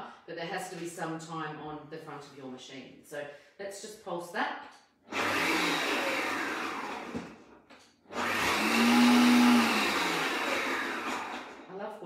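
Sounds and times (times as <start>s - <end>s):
food processor motor chopping: 5.1s - 11.7s.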